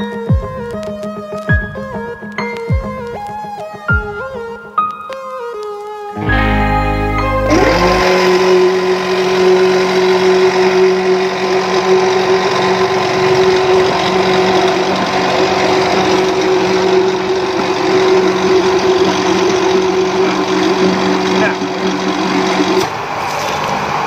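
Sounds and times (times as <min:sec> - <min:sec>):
electric water pump humming: 0:06.9 - 0:24.0.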